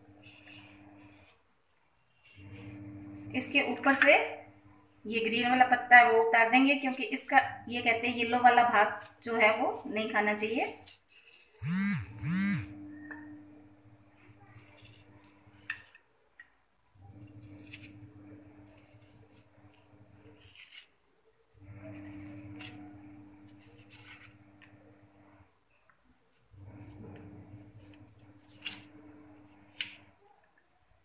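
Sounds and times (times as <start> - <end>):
faint steady hum: 0.0 - 20.6, 21.3 - 31.0
knife slicing and scraping leaf: 0.2 - 1.4, 10.8 - 11.6, 14.2 - 16.0, 17.2 - 21.0, 21.8 - 24.3, 26.3 - 30.1.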